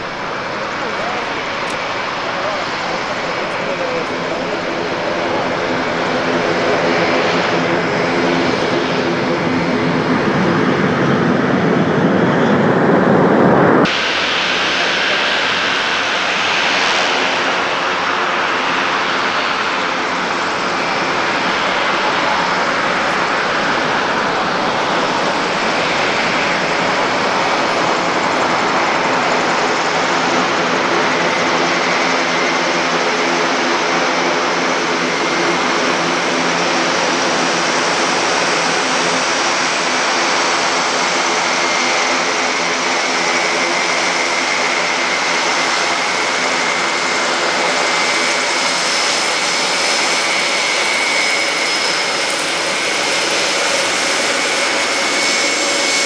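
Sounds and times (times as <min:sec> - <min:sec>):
high turbine whine: 0:00.0 - 0:56.0
propeller drone: 0:00.0 - 0:56.0.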